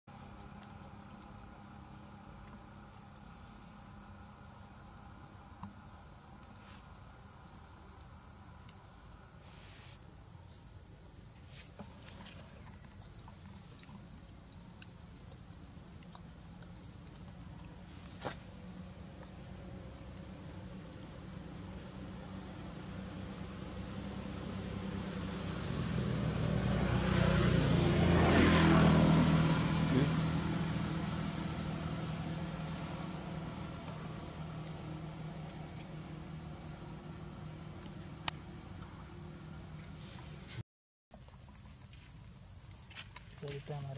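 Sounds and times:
high-pitched insect chorus: 0:00.1 - 0:40.6, 0:41.2 - 0:43.9
vehicle engine approaching: 0:11.5 - 0:40.6.

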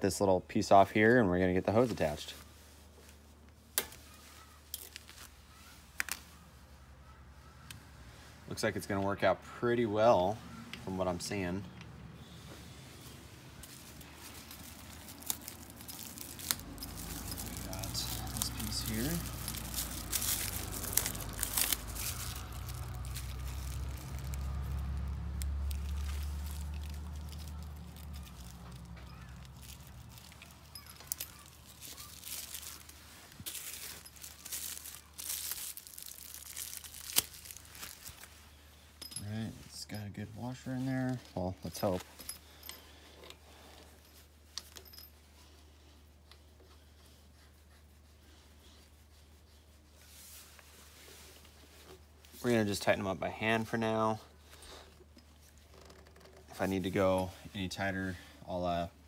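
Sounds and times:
plastic wrapping crinkling: 0:01.8 - 0:06.8, 0:12.8 - 0:38.9.

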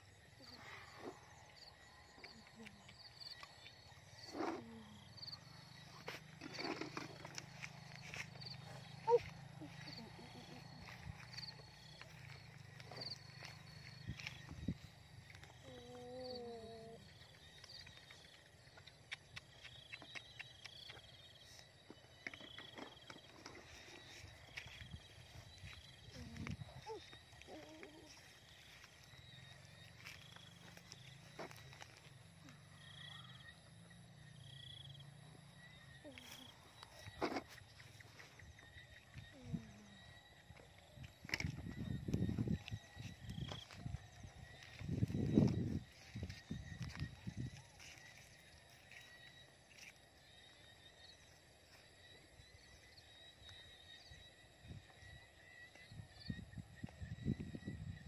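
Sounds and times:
insect song: 0:00.0 - 0:58.0
footsteps on dirt track: 0:05.4 - 0:15.6, 0:17.4 - 0:32.7, 0:36.1 - 0:50.8.

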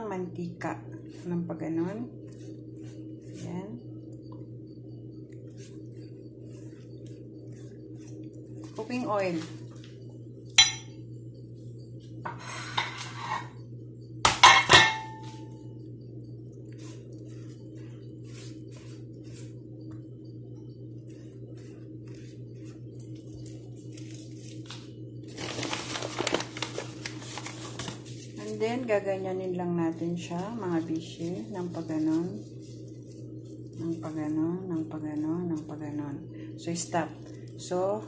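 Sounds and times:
steady low hum: 0:00.0 - 0:38.0
rustling and scraping: 0:12.3 - 0:13.6, 0:16.7 - 0:19.7, 0:21.0 - 0:35.8
kitchenware clinking on metal tray: 0:14.3 - 0:15.3.

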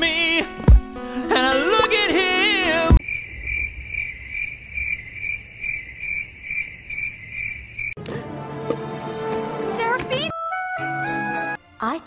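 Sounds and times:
cricket chirping: 0:03.0 - 0:08.0.

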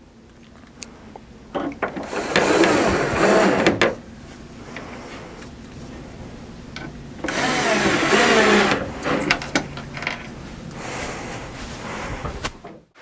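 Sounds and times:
cordless drill driving screw: 0:02.0 - 0:03.8, 0:07.2 - 0:09.4.

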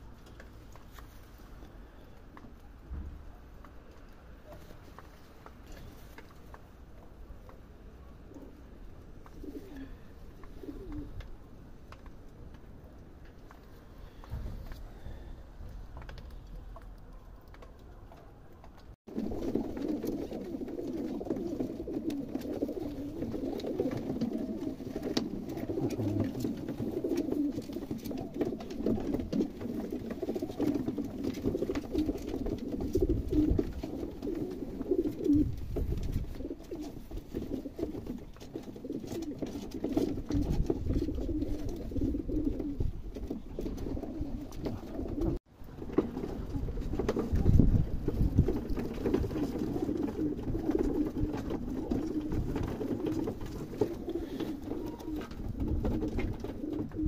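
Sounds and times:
pigeons cooing: 0:08.0 - 0:11.6, 0:19.1 - 0:57.0.

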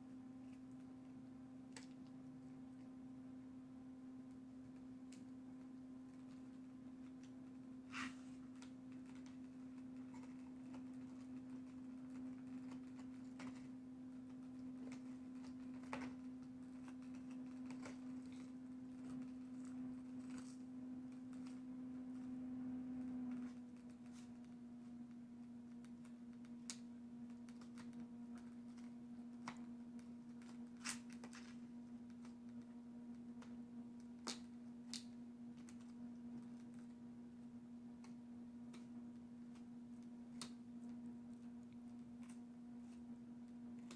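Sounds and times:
low electrical hum: 0:00.0 - 0:43.9.

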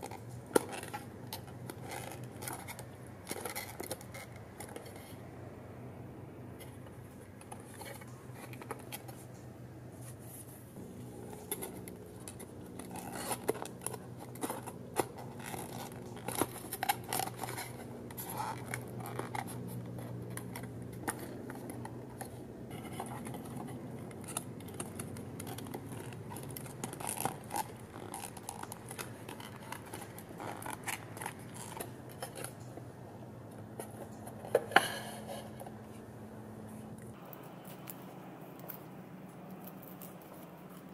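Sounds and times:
card scraping and rubbing: 0:06.6 - 0:32.7.

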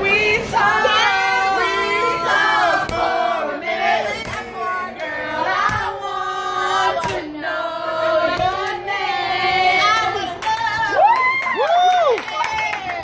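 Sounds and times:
group of people singing: 0:00.0 - 0:11.4.

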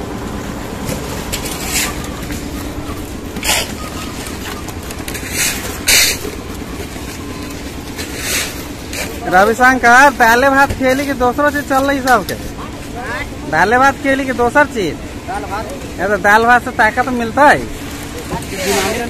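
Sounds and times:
concrete mixer engine running: 0:00.0 - 0:19.0
wet concrete scraping: 0:00.9 - 0:12.6, 0:17.5 - 0:19.0.

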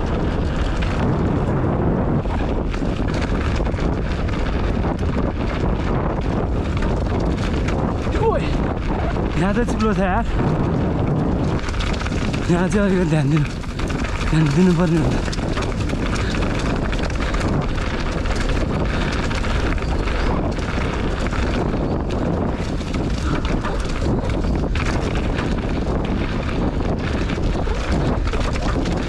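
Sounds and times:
mountain bike rolling on dirt trail: 0:00.0 - 0:29.0
wind buffeting microphone: 0:00.0 - 0:29.0
small rattles and knocks: 0:09.4 - 0:29.0.

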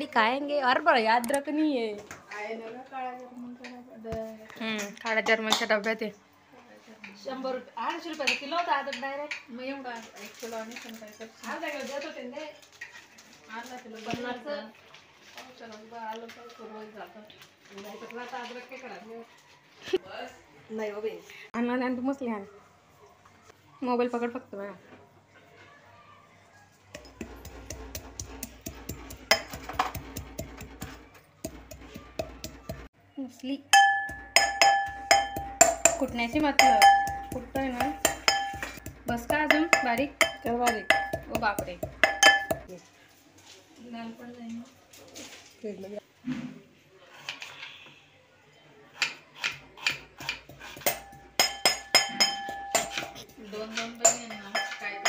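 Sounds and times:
knife chopping on wooden board: 0:27.0 - 0:32.9
pounding in a steel pot: 0:27.0 - 0:32.9, 0:33.7 - 0:42.7, 0:49.4 - 0:55.0.

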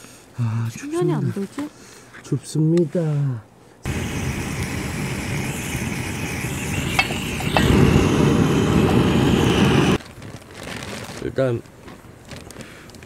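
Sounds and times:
campfire flame rushing: 0:03.8 - 0:10.0.

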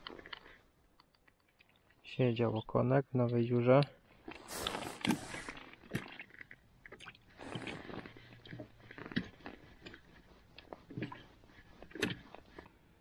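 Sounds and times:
clothing rustle: 0:04.3 - 0:05.7.

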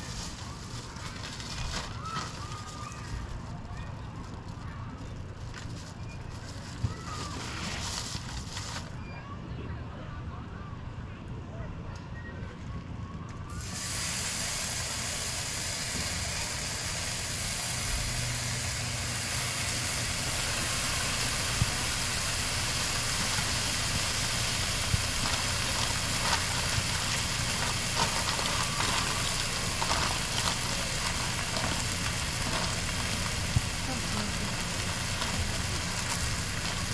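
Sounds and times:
bacon sizzling on a griddle: 0:00.0 - 0:03.3, 0:13.6 - 0:36.9
low steady hum: 0:14.5 - 0:36.9
fat popping and crackling: 0:18.8 - 0:36.9.

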